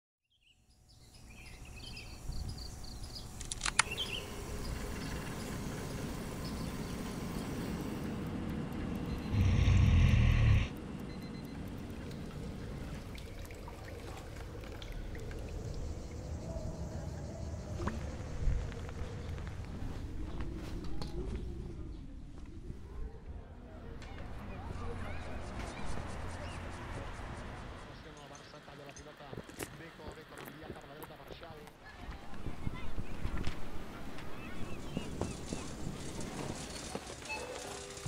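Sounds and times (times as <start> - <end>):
outdoor ambient noise: 0.4 - 38.0
sharp click: 3.4 - 4.1
burst of low heavy noise: 9.2 - 10.7.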